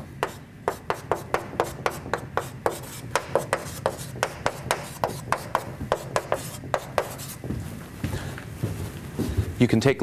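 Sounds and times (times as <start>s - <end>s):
chalk on chalkboard: 0.0s - 7.5s.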